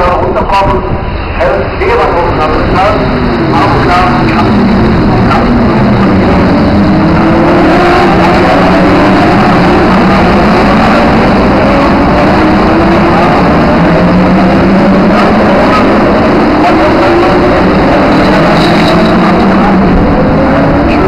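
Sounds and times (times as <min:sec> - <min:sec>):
race car engines accelerating: 0:00.0 - 0:21.0.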